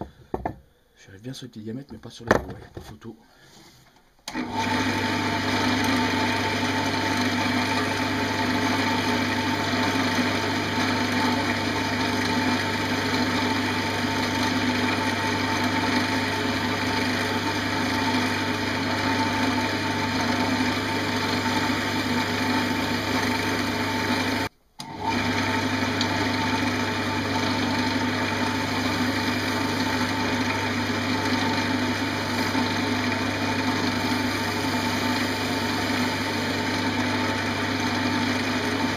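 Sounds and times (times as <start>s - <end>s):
gouge cutting spinning wood: 4.3s - 38.9s
wood lathe motor hum: 4.3s - 38.9s.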